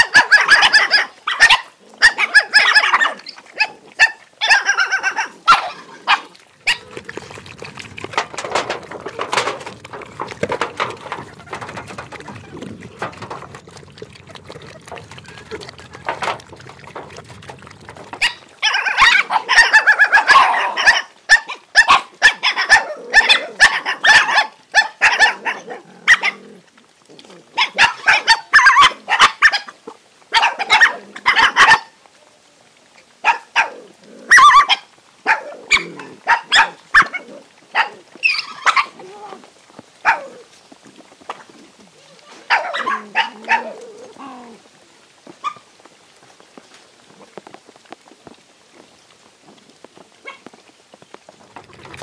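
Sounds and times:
dogs barking and fighting: 0:00.0 - 0:32.0, 0:33.1 - 0:44.7, 0:45.3 - 0:45.8, 0:50.2 - 0:50.6, 0:51.3 - 0:52.0.

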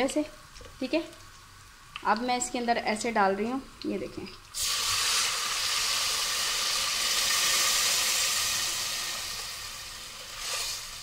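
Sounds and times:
water hissing in hot oil: 0:04.5 - 0:11.0.

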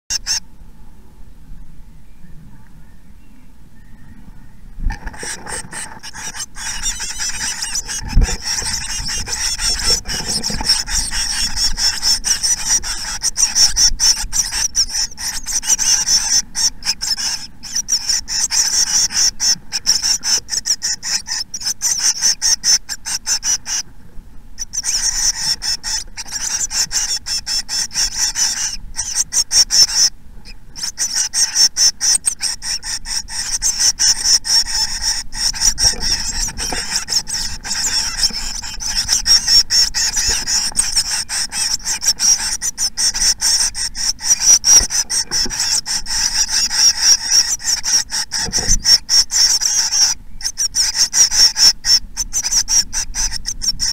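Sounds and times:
nestlings begging calls: 0:00.1 - 0:00.5, 0:04.9 - 0:23.9, 0:24.6 - 0:53.9.

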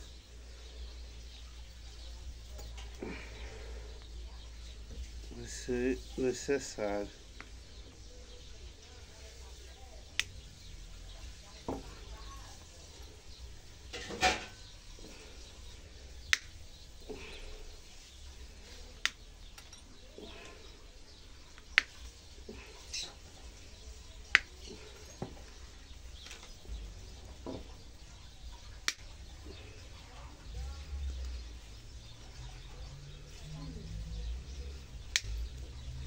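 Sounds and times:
pliers snipping wire: 0:28.8 - 0:29.1.

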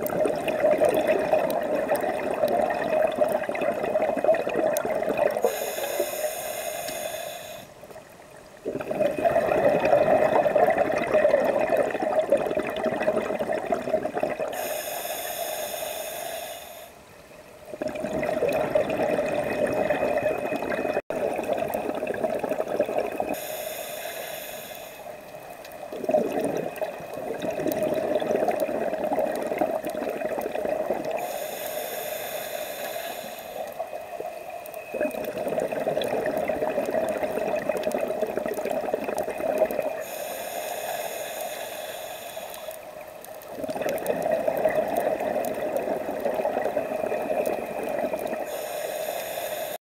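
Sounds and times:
bubbling exhale underwater: 0:00.0 - 0:07.6, 0:08.6 - 0:16.0, 0:17.7 - 0:23.8, 0:25.7 - 0:49.8
regulator hissing inhale: 0:05.4 - 0:07.9, 0:14.5 - 0:17.0, 0:23.3 - 0:25.4, 0:31.1 - 0:34.8, 0:40.0 - 0:43.2, 0:47.6 - 0:49.8.

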